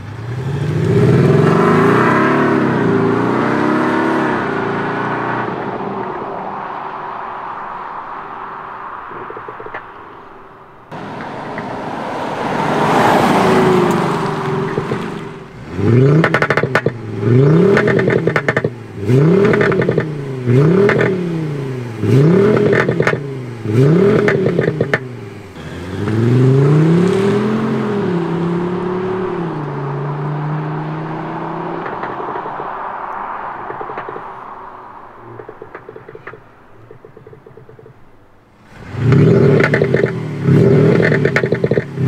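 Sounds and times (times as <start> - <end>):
car passing: 0.0 - 42.0
engine revving with popping: 12.8 - 34.5, 35.3 - 38.0, 38.7 - 42.0.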